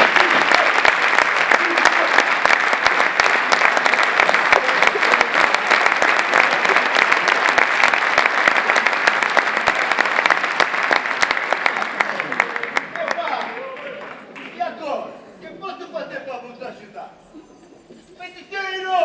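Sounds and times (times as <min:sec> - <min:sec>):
large audience applauding: 0:00.0 - 0:14.6.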